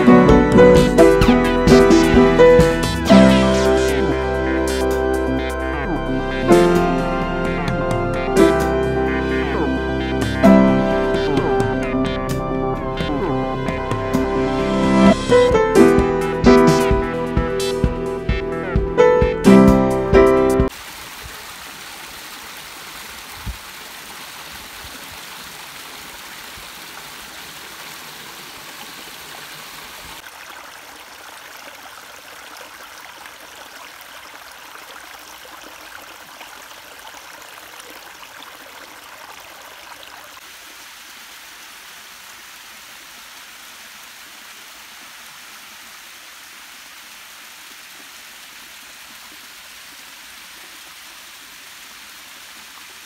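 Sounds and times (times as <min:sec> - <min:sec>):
stream splashing over rocks: 0:20.7 - 0:53.0.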